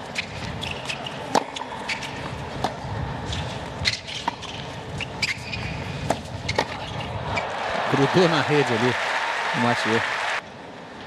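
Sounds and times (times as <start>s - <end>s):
low crowd hum: 0.0s - 11.0s
tennis racket hitting ball: 0.2s - 4.7s, 5.3s - 6.9s
tennis ball bouncing: 0.2s - 7.2s.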